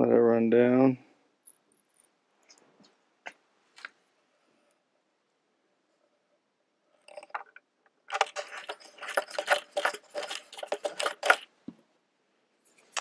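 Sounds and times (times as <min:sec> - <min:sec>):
metal nut clinking on bolt: 0:08.1 - 0:11.5.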